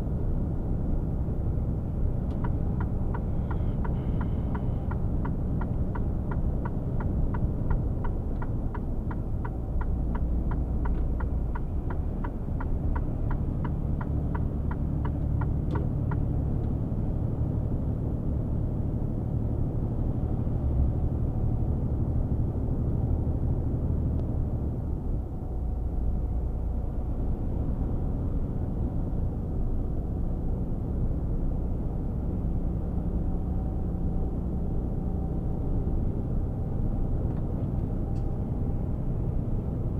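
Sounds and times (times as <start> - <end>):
diesel truck engine drone: 0.0 - 39.9
road noise: 0.0 - 39.9
turn signal ticking: 2.3 - 16.7.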